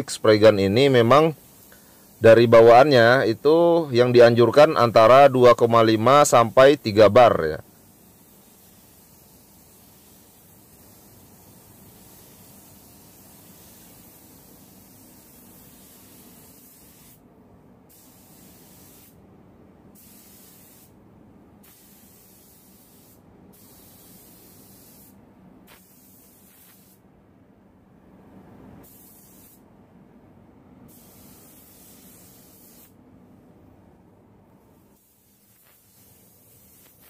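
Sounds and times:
spray gun air hiss: 0.0 - 17.2, 17.9 - 19.2, 19.9 - 21.0, 21.6 - 27.0, 28.8 - 29.6, 30.9 - 33.0, 34.6 - 37.0.

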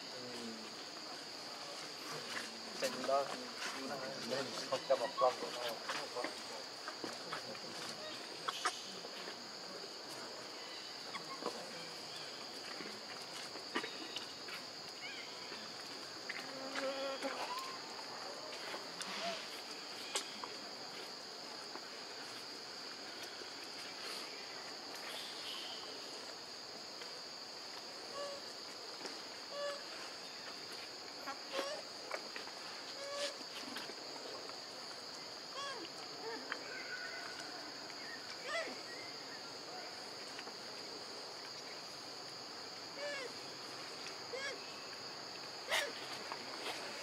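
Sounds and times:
insect chorus drone: 0.0 - 47.0
faint chirps: 23.1 - 26.1.

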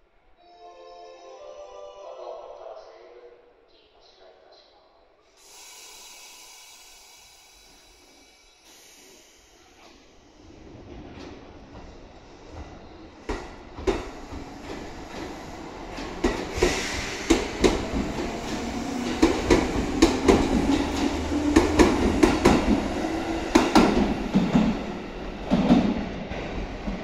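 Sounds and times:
train rumble and low hum: 6.5 - 27.0.

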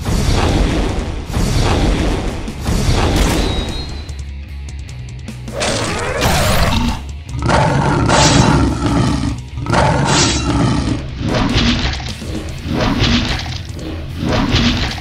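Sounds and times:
background music: 0.0 - 15.0
monster roars: 5.5 - 11.1.

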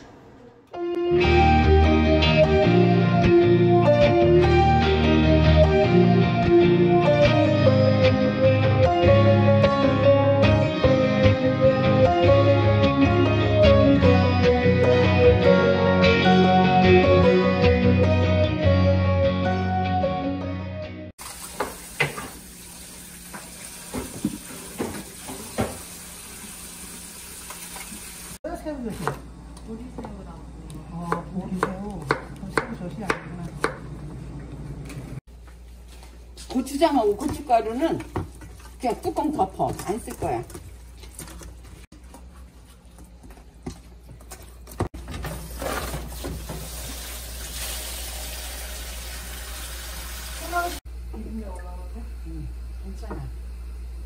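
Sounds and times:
tap running into a basin: 21.2 - 28.4, 45.7 - 50.5.

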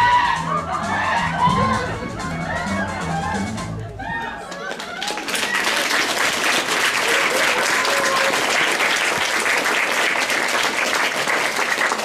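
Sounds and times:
audience applauding: 4.2 - 12.0.

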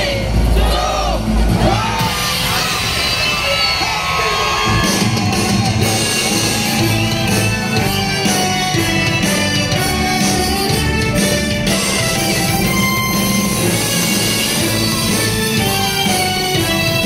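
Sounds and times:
loud music with guitar: 1.5 - 17.0
heavy bass beat: 4.5 - 17.0.

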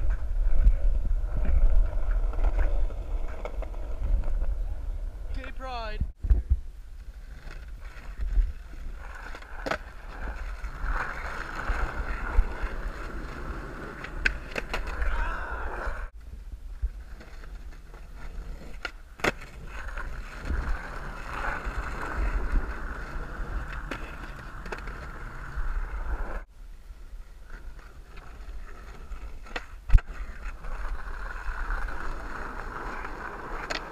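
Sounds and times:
skateboard wheels rolling on asphalt: 0.0 - 33.9
skateboard clacking on ground: 27.5 - 33.9.

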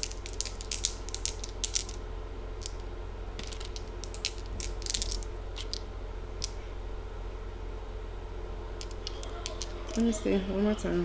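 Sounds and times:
dice clicking in hand: 0.0 - 2.0, 2.6 - 2.8, 3.4 - 5.8, 8.8 - 10.0.

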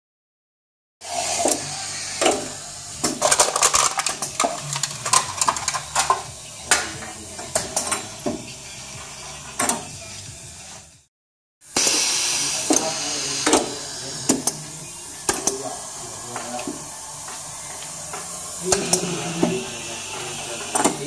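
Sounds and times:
air hissing: 1.0 - 3.3, 11.6 - 21.0.

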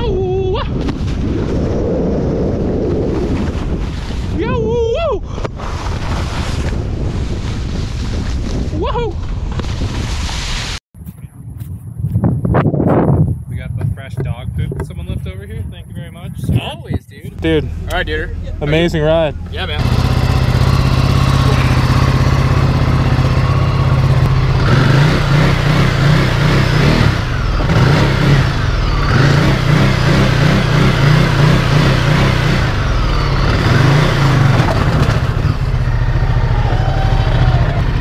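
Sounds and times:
motorcycle engine idling and revving: 16.6 - 38.0.

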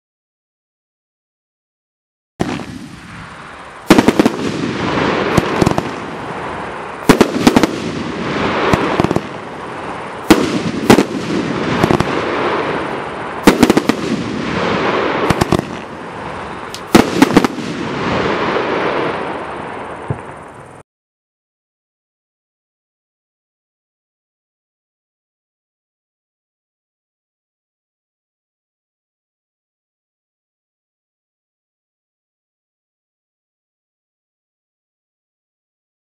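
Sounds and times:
fireworks bangs: 2.4 - 20.6
fireworks rushing trail: 2.4 - 20.8.

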